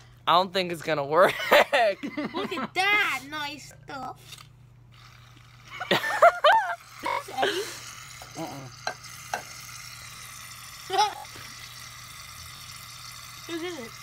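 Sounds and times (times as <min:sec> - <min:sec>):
aerosol can hissing and sputtering: 0:04.9 - 0:14.0.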